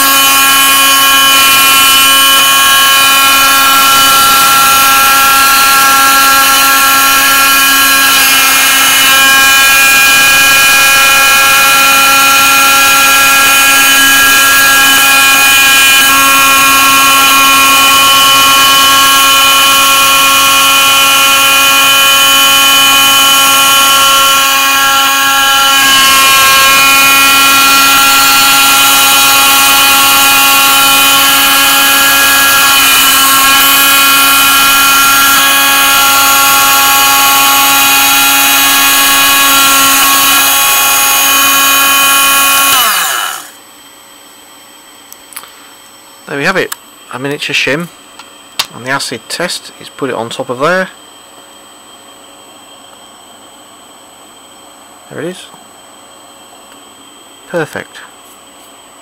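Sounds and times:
milling machine spindle whining: 0:00.0 - 0:43.6.

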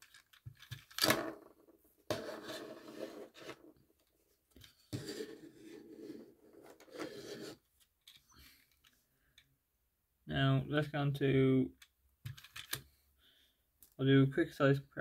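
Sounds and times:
toy car scraping on mat: 0:02.1 - 0:03.8, 0:04.9 - 0:07.6.

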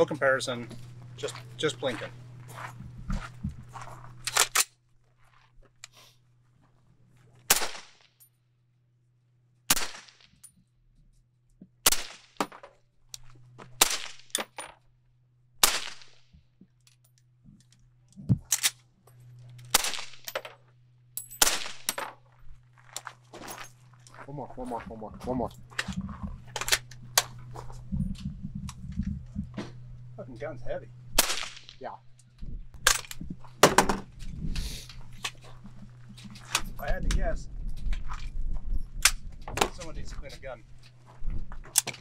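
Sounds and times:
suppressed rifle shots: 0:31.2 - 0:31.8.

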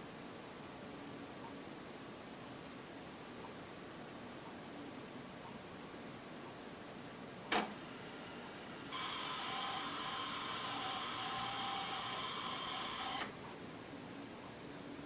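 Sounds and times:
steady hiss: 0:05.8 - 0:15.0.

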